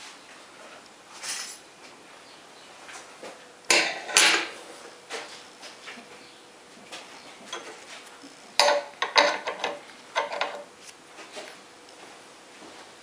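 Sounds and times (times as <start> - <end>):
metal tools clinking: 1.2 - 1.6, 8.6 - 10.6.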